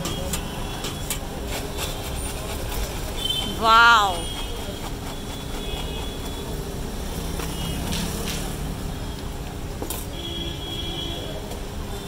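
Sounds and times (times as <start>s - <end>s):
spoon stirring in paper cone: 0.0s - 7.5s
street traffic noise: 0.0s - 12.0s.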